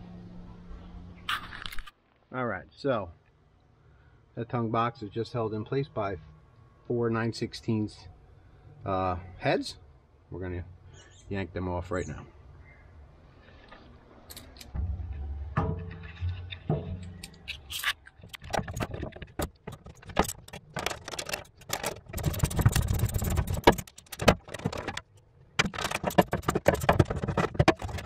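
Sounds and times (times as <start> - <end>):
low rumble: 14.7 - 17.5
knocks: 14.8 - 17.2, 25.6 - 28.0.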